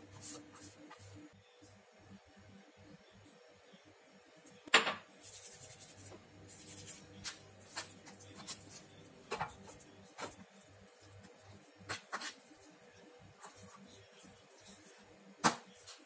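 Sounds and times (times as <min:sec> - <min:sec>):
hands squishing dough: 0:05.2 - 0:16.0.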